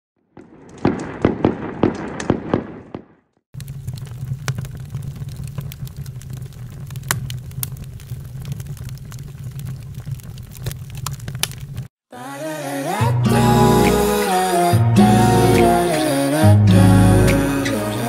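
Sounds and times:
open fire crackling and popping: 0:00.2 - 0:12.0.

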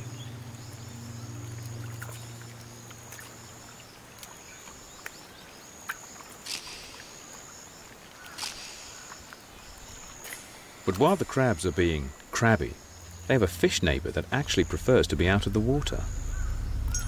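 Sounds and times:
low hum: 0:00.0 - 0:04.0, 0:10.7 - 0:17.0.

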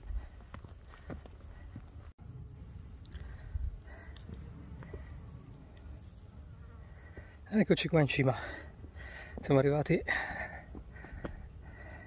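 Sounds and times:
insect chirping: 0:02.2 - 0:07.5.

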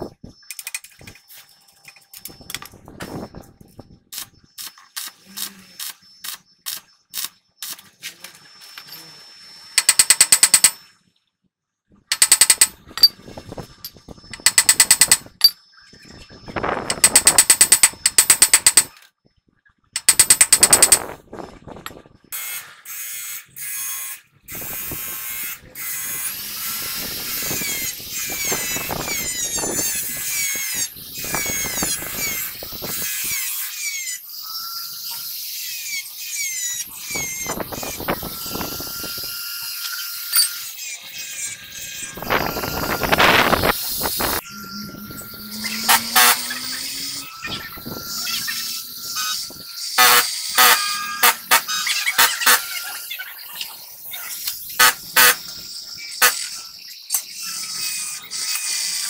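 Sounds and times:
die grinder high whine: 0:23.7 - 0:59.0.

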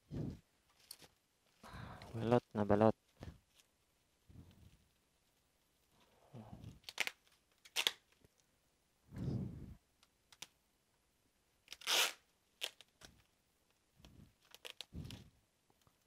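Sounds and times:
packing material tearing: 0:06.6 - 0:08.2, 0:11.7 - 0:13.1, 0:14.4 - 0:15.2.

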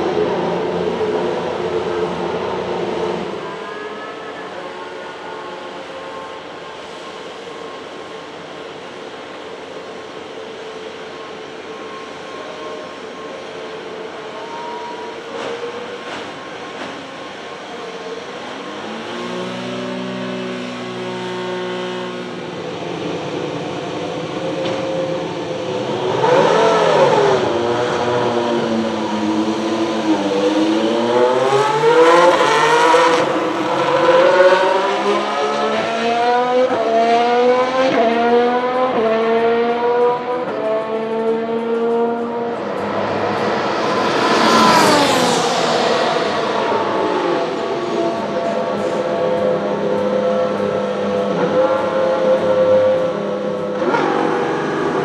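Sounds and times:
racing car accelerating: 0:17.6 - 0:22.6, 0:24.4 - 0:55.0
racing car passing by: 0:25.8 - 0:55.0.

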